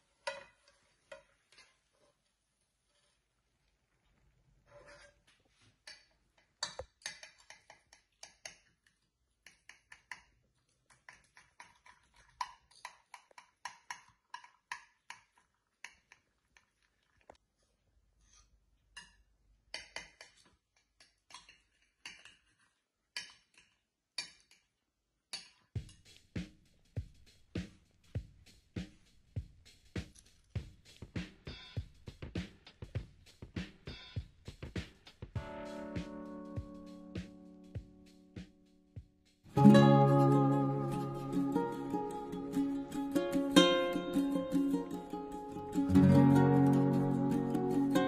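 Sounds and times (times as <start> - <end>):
knife and fork on ceramic plate: 19.8 - 24.7.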